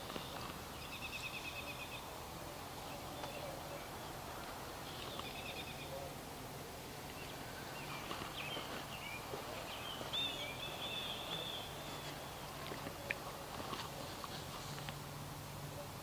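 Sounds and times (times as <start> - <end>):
songbird trilling: 0.0 - 2.1, 2.8 - 6.2, 7.1 - 13.3.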